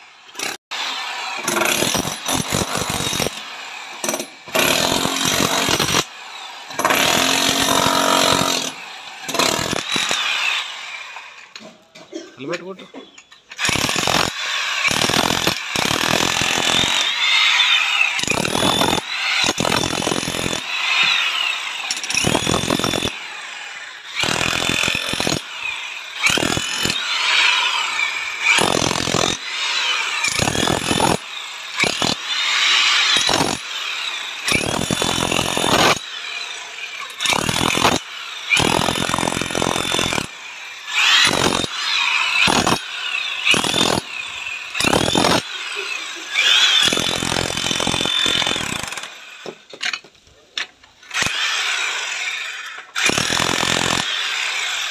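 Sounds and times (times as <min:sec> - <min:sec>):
demolition hammer chiselling brick: 0:01.4 - 0:06.1, 0:06.7 - 0:10.3, 0:13.6 - 0:23.2, 0:24.2 - 0:25.6, 0:26.2 - 0:27.8, 0:28.4 - 0:31.2, 0:31.8 - 0:36.2, 0:37.1 - 0:40.3, 0:40.9 - 0:41.8, 0:42.4 - 0:44.2, 0:44.8 - 0:45.5, 0:46.4 - 0:49.1, 0:52.9 - 0:54.9.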